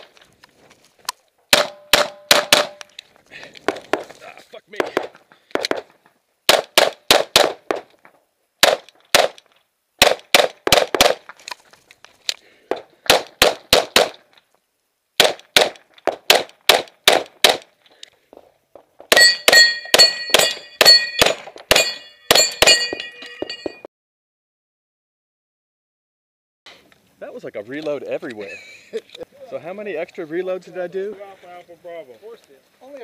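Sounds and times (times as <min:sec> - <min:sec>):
pistol shots: 0:01.5 - 0:02.8, 0:06.5 - 0:07.9, 0:08.6 - 0:09.4, 0:10.0 - 0:11.2, 0:13.1 - 0:14.2, 0:15.2 - 0:17.7
steel targets clanging: 0:19.1 - 0:23.9.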